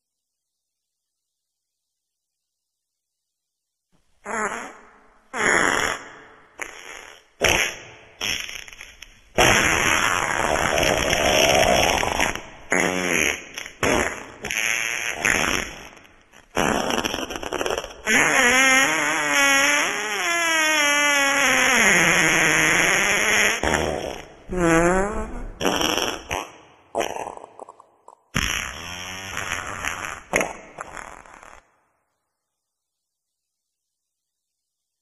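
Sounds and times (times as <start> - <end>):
wet farts: 4.2 - 31.7.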